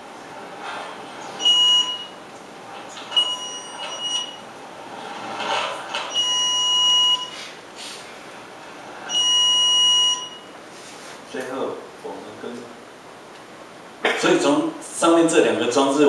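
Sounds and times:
high electronic alarm beep: 1.4 - 2.2, 3.1 - 4.4, 6.1 - 7.4, 9.1 - 10.5.

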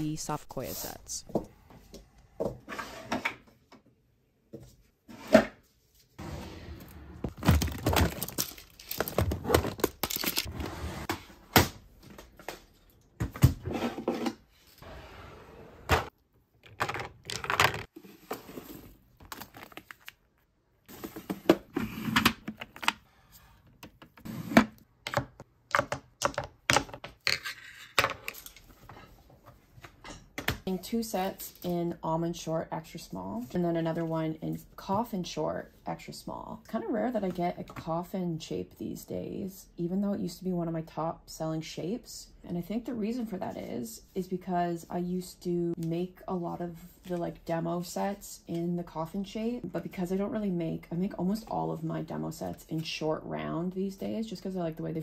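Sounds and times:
drawer sliding open: 6.2 - 7.4, 10.5 - 11.3, 13.6 - 16.1.

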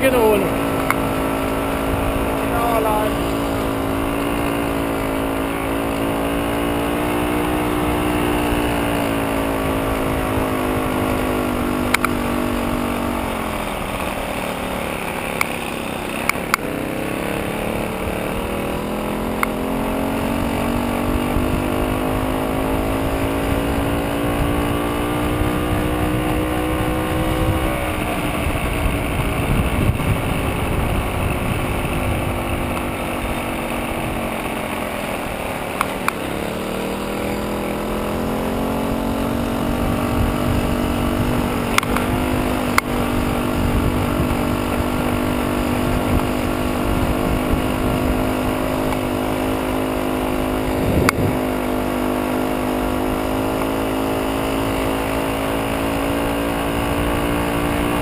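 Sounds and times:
moped two-stroke engine buzzing: 0.0 - 58.0
sharp clicks: 11.9 - 12.2.

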